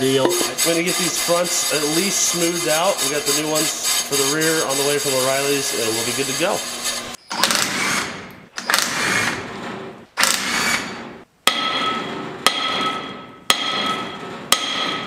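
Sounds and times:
hammer striking ringing steel: 0:00.2 - 0:00.6, 0:11.5 - 0:15.0.

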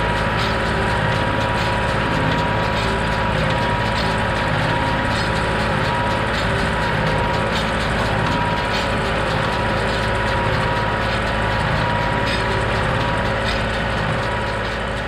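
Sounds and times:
hay baler plunger working: 0:00.0 - 0:15.0
tractor engine running: 0:00.0 - 0:15.0.

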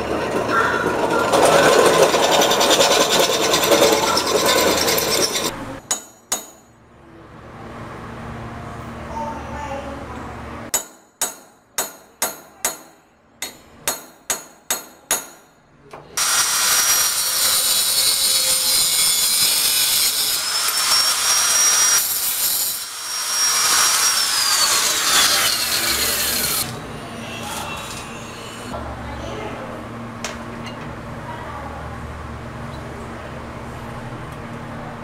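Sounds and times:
angle grinder grinding steel: 0:00.0 - 0:05.6, 0:16.2 - 0:28.8
hammer striking metal: 0:00.4 - 0:06.8, 0:10.7 - 0:15.6.

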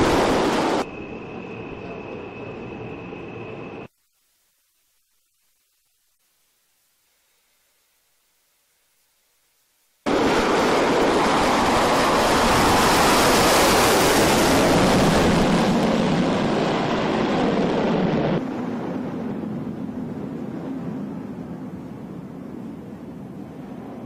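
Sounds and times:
jet engines rushing at full thrust: 0:00.0 - 0:03.9, 0:10.0 - 0:24.0.

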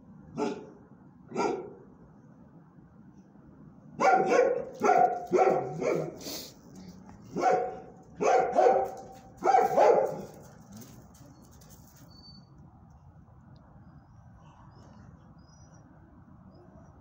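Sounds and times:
dog barking: 0:00.4 - 0:01.8, 0:04.0 - 0:06.3, 0:07.3 - 0:10.5.

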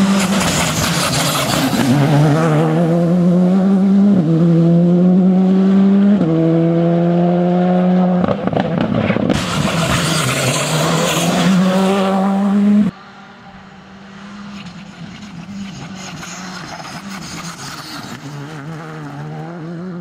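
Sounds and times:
tyre and road noise rushing: 0:00.0 - 0:04.8, 0:08.1 - 0:20.0
rally car engine at high revs: 0:00.0 - 0:20.0.

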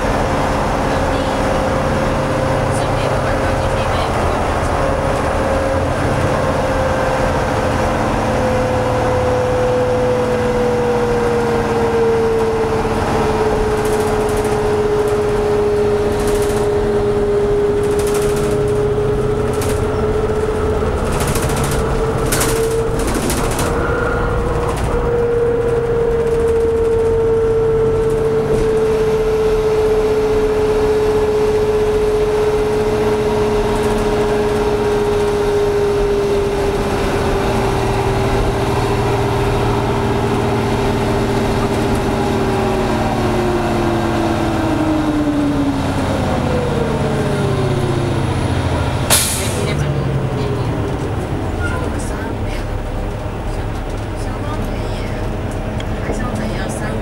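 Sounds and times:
bus drive whine: 0:00.0 - 0:57.0
low engine rumble: 0:00.0 - 0:57.0
clicks and rattles: 0:21.0 - 0:23.8.

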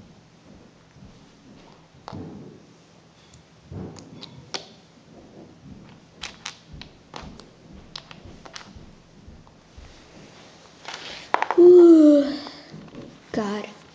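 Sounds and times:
plastic toys tapping on wooden floor: 0:11.3 - 0:11.7.

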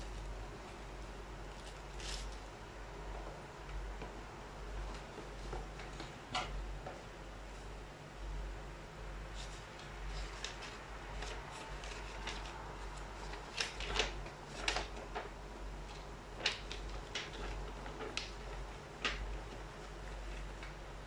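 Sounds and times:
paper crinkling and rustling: 0:01.4 - 0:02.6, 0:09.3 - 0:21.0.

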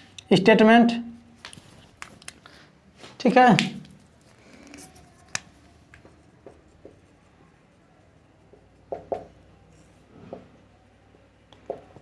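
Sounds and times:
marker writing on whiteboard: 0:03.6 - 0:10.6.

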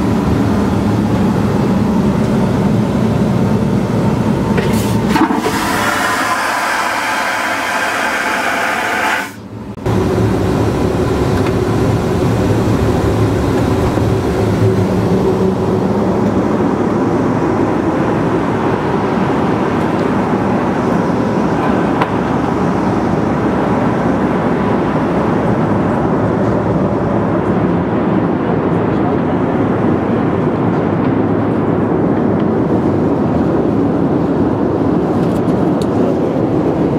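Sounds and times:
airliner cabin rumble: 0:00.0 - 0:36.9
vacuum toilet flushing: 0:04.6 - 0:09.4.

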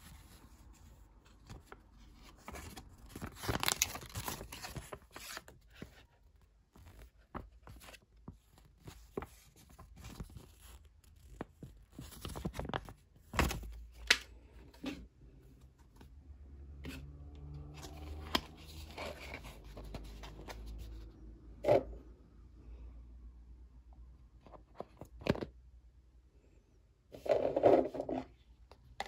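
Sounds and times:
wrapper rustling and tearing: 0:02.3 - 0:05.6.

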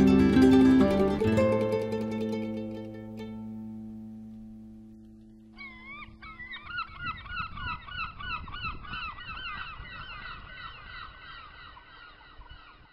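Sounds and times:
flock of birds calling: 0:05.5 - 0:12.9.

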